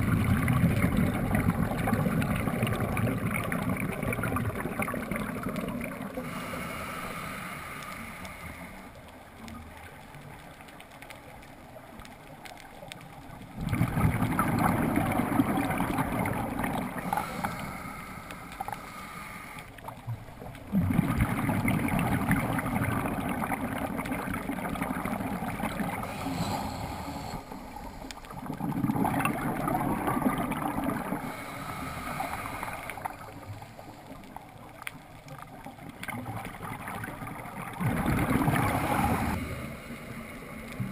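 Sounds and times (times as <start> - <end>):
underwater regulator bubbling exhalation: 0.0 - 6.8, 13.6 - 19.0, 20.7 - 33.6, 35.9 - 39.7
regulator inhalation: 6.2 - 8.9, 17.0 - 19.7, 26.0 - 28.3, 31.2 - 34.0.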